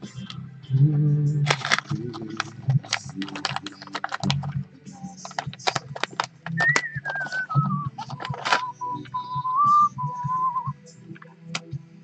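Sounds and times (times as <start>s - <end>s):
parts clicking in metal chassis: 1.5s - 4.6s.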